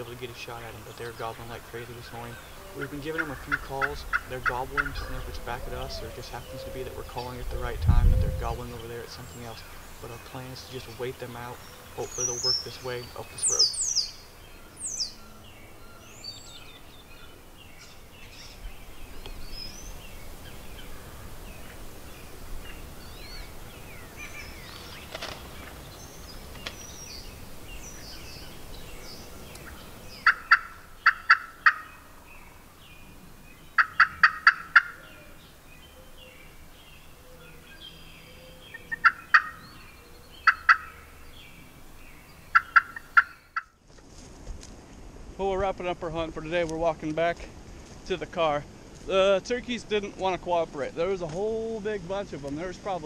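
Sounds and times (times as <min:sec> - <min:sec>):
faint songbird chirps: 0:00.0 - 0:43.9
turkeys gobbling: 0:00.4 - 0:07.6, 0:29.6 - 0:32.0, 0:33.8 - 0:35.3, 0:38.7 - 0:39.7, 0:40.4 - 0:41.1, 0:42.5 - 0:43.7.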